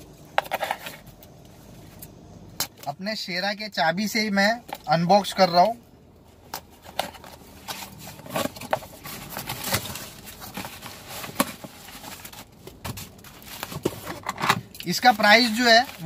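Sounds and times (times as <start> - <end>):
bubble wrap rustling: 6.7 - 14.3, 15.0 - 16.0.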